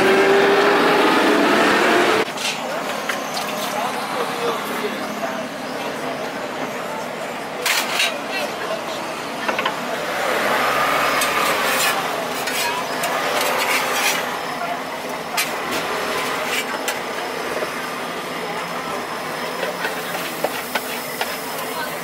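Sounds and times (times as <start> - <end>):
street noise: 0.0 - 22.0
metal spatula scraping pan: 11.2 - 14.3.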